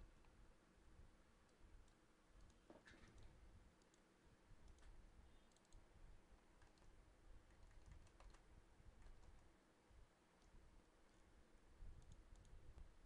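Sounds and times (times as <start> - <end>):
faint room hum: 0.0 - 13.0
mouse clicks: 1.4 - 5.9, 6.6 - 9.5, 12.0 - 12.9
computer key presses: 6.6 - 6.9, 7.5 - 8.4, 9.0 - 9.5.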